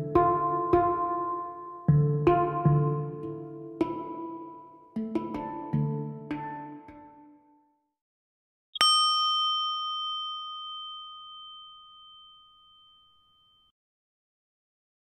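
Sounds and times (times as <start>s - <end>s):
music: 0.0s - 8.0s
bell ringing: 8.8s - 13.7s.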